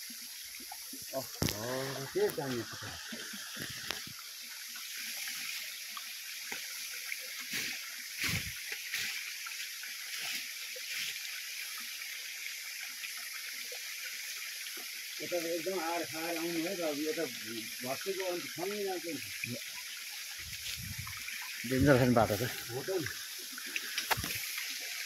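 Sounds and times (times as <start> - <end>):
stream water flowing: 0.0 - 25.0
leaves and branches rustling: 7.4 - 11.3, 20.3 - 25.0.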